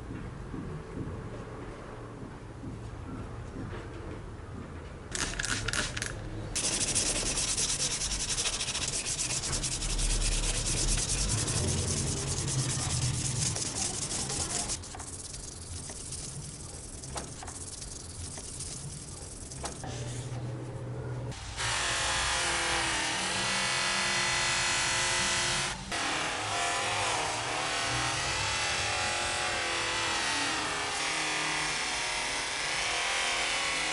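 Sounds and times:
buffing wheel humming: 6.6 - 19.8
sandpaper rubbing on steel blade: 6.6 - 19.9.

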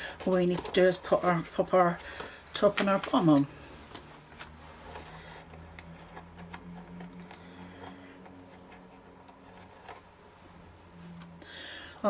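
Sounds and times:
steady low hum: 3.4 - 12.0.

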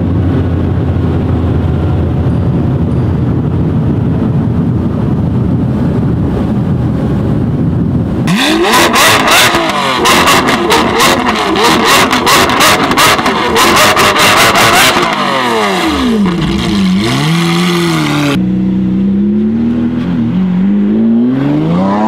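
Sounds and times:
car engine drone from cabin: 0.0 - 22.0
car engine revving: 8.3 - 22.0.

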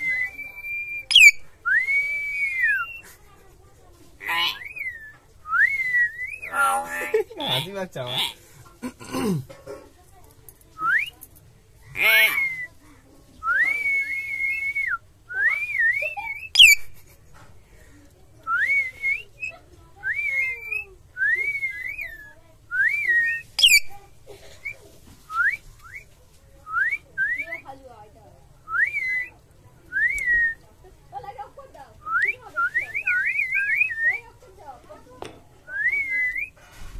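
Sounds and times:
myna whistling: 0.0 - 3.0, 4.2 - 7.1, 12.1 - 12.8, 13.4 - 16.9, 18.5 - 24.0, 26.7 - 27.7, 28.7 - 30.6, 32.0 - 34.3, 35.7 - 36.6.

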